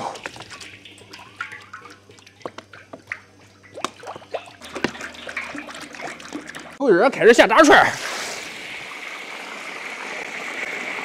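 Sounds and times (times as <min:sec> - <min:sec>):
small drips and ticks: 0:00.0 - 0:06.8.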